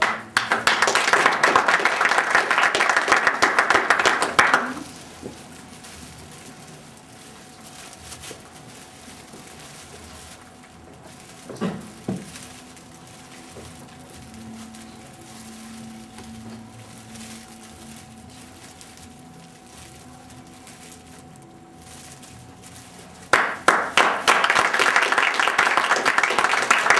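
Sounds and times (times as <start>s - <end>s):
audience applause: 0.0s - 4.8s, 23.3s - 26.9s.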